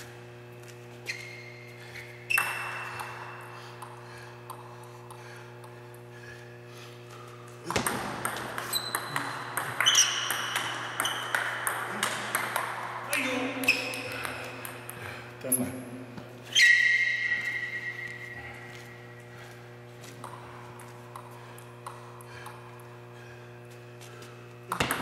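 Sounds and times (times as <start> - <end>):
steady low hum: 0.0 - 25.0
table tennis ball hitting paddles: 2.3 - 3.2, 7.6 - 15.0, 24.7 - 25.0.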